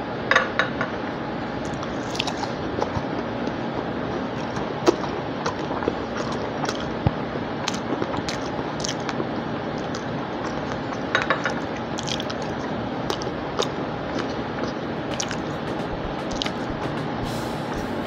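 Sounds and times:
person chewing food: 1.5 - 18.0
wet mouth clicks and smacks: 1.7 - 9.2, 9.8 - 16.8
steady hiss: 15.0 - 18.0.

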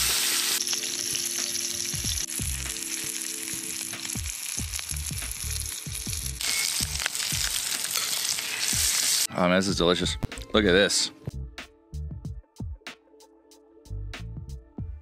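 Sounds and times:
steak sizzling in skillet: 0.0 - 9.3.

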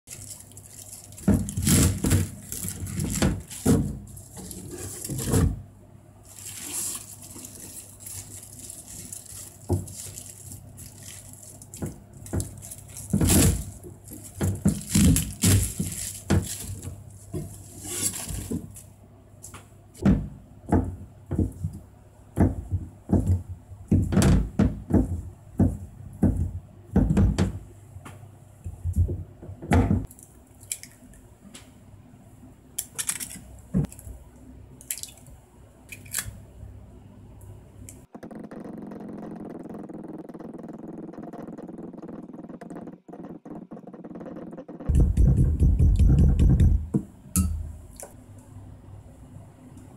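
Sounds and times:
knife knocking on cutting board: 44.9 - 47.1.

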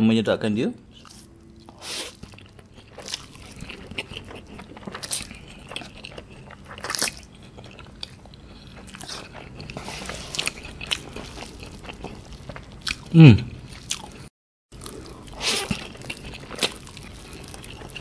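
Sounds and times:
man chewing noodles: 0.9 - 18.0.

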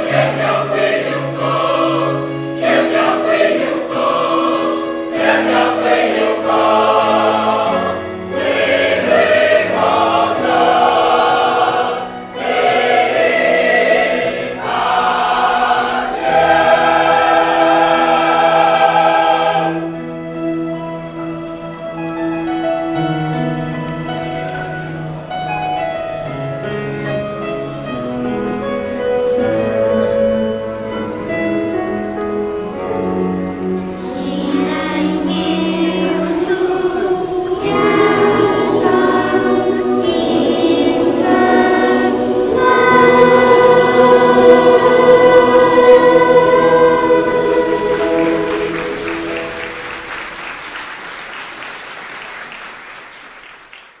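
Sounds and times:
choir singing sustained chords: 0.0 - 23.4, 28.9 - 50.6
applause: 47.7 - 54.0.

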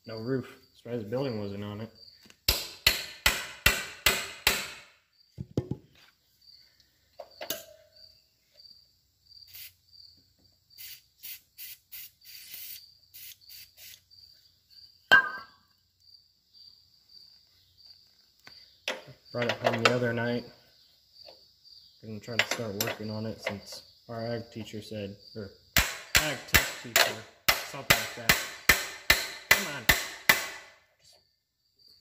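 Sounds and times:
crickets chirping: 0.0 - 32.0
aerosol can spraying: 9.5 - 9.8, 10.8 - 14.0.

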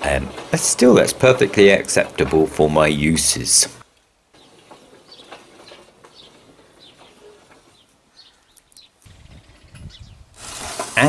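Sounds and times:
small birds chirping: 3.7 - 10.4.

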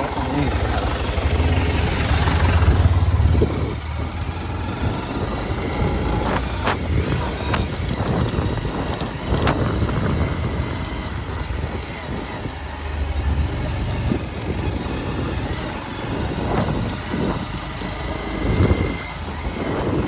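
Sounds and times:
vehicle low rumble: 0.0 - 20.0
wind buffeting microphone: 0.0 - 20.0.

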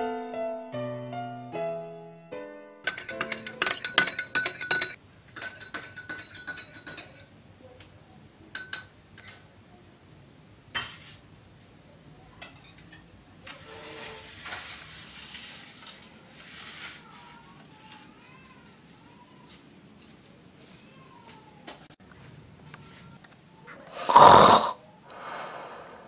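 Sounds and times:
metal spoon clinking in glass: 2.8 - 7.3, 8.5 - 9.5
soft rustling: 13.4 - 23.4.

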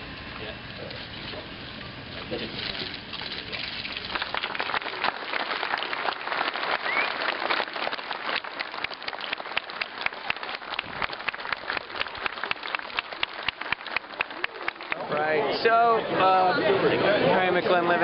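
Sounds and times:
crowd applauding: 3.6 - 15.3.

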